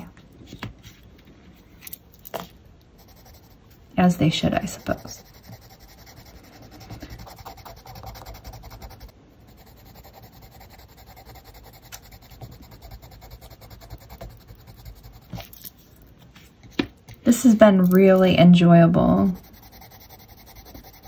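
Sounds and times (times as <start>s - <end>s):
colored pencil scratching on paper: 3.0s - 15.6s, 18.8s - 21.0s.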